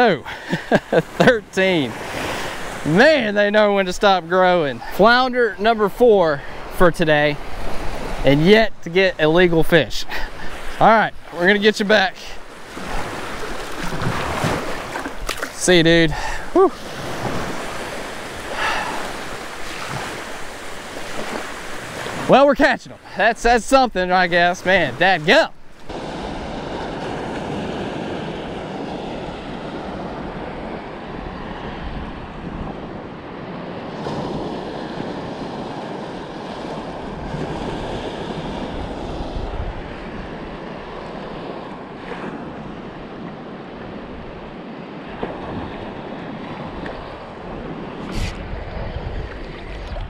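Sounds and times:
small waves washing: 0.0 - 50.0
wind buffeting microphone: 25.7 - 50.0
sleeve brushing camera: 48.0 - 48.4.

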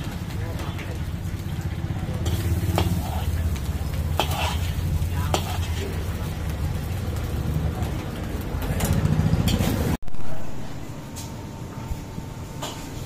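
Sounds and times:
ladle scraping a wok: 2.2 - 6.4.

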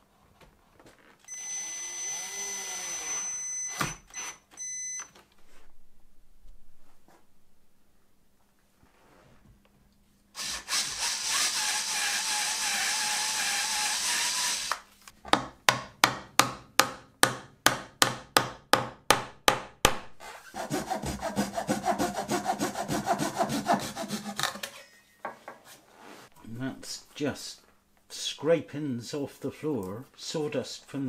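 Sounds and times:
hand tool scraping wood: 20.2 - 24.8.

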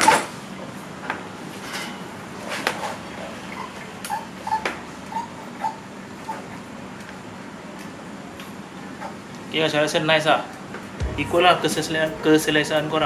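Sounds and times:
suspension squeaks: 3.6 - 6.6.

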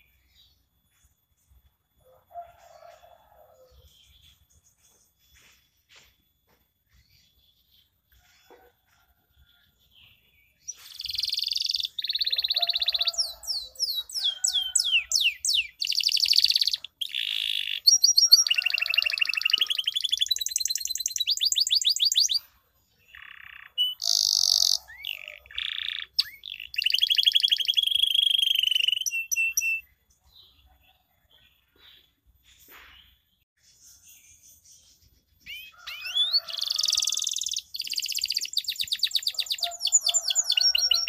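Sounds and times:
canary singing trills: 10.6 - 31.0, 33.8 - 41.0.

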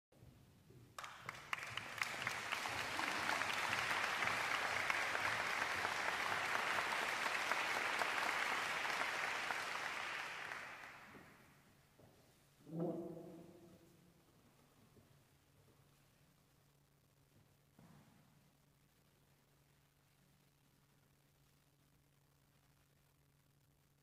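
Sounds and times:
audience applauding: 1.0 - 11.4.

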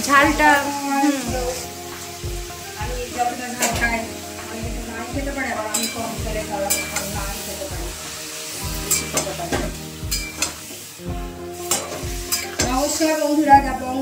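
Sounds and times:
chicken and onions sizzling in oil: 0.0 - 14.0
soft background music with beat: 0.0 - 14.0
spatula scraping and knocking pan: 1.3 - 10.8, 11.5 - 13.0.

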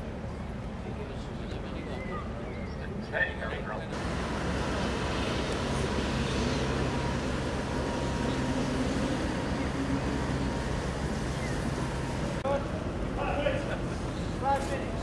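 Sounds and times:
boat engine droning: 0.0 - 15.0
water wash: 4.0 - 13.1.

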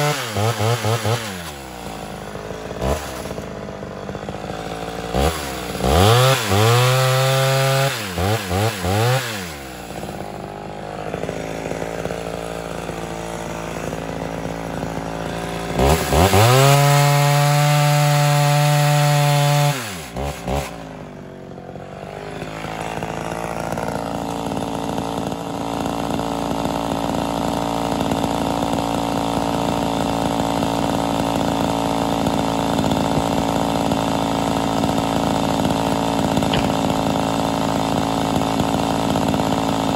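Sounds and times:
chainsaw cutting log: 0.0 - 39.9
chainsaw idling: 0.0 - 39.9
chainsaw revving: 0.0 - 39.9.

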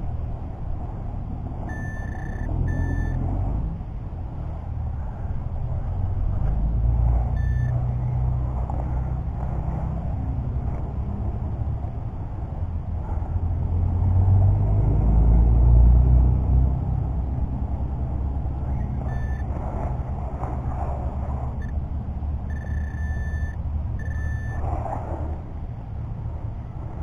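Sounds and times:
steady low rumble: 0.0 - 27.0
short electronic beeps: 1.7 - 3.2, 7.3 - 8.2, 18.6 - 19.5, 21.6 - 21.8, 22.5 - 24.6.

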